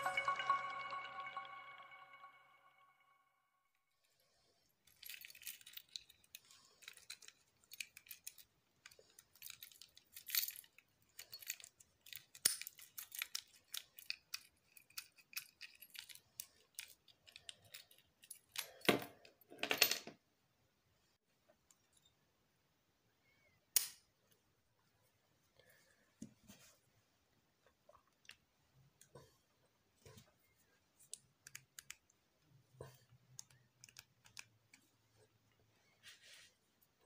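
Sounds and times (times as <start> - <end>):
padlock clicking and rattling: 4.9 - 18.6.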